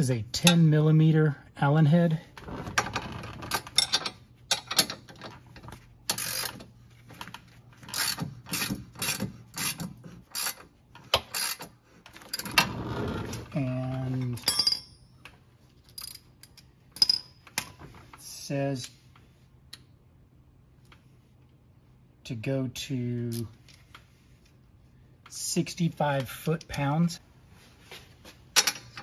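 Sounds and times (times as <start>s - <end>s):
ratcheting wrench clicking: 6.1s - 6.6s, 7.9s - 11.7s.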